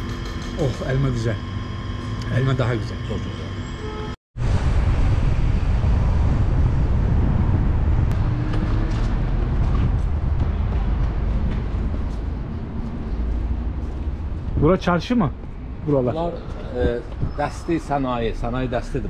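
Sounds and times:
car engine and road rumble: 4.4s - 18.8s.

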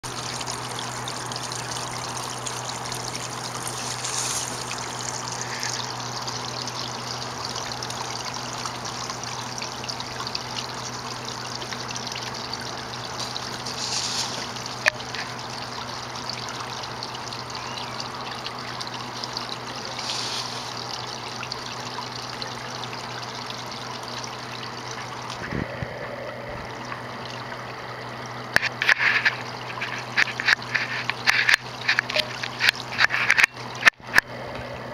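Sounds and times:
water trickling into pond: 0.0s - 34.9s.

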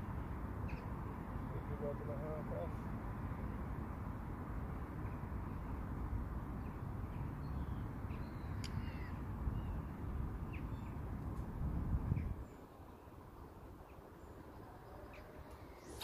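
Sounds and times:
wind buffeting microphone: 9.1s - 12.6s
bird chirps: 13.9s - 16.0s.

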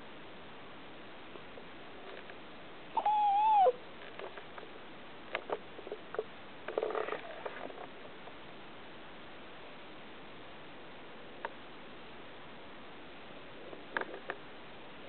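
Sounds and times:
dog whining: 3.0s - 3.8s.

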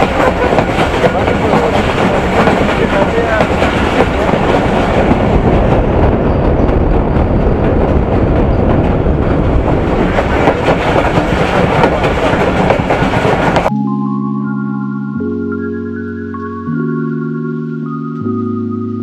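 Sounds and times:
train wheels rumbling on rail: 0.0s - 13.7s.

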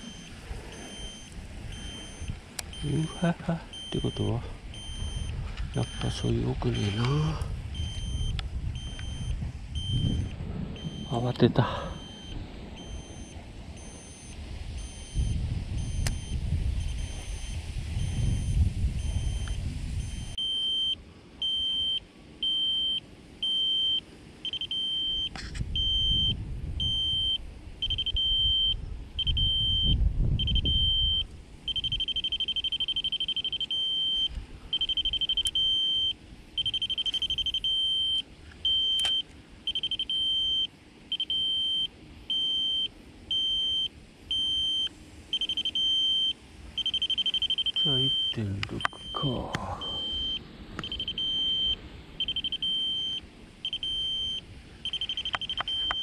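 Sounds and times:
wind rumbling on microphone: 0.0s - 20.4s, 25.0s - 40.6s
electronic alarm beeping: 0.0s - 56.0s.

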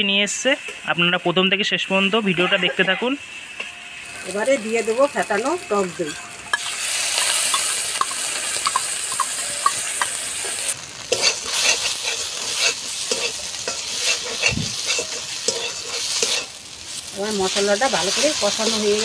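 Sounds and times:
yogurt sizzling in hot oil: 0.0s - 19.0s
spatula scraping metal pan: 9.2s - 16.6s.

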